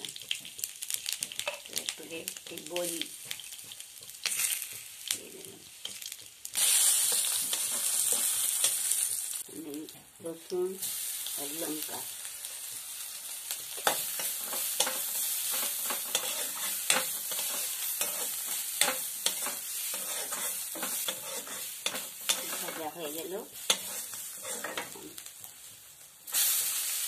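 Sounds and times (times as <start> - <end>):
food sizzling in oil: 0.0 - 27.0
metal spatula scraping a pan: 6.6 - 9.0, 13.7 - 25.2.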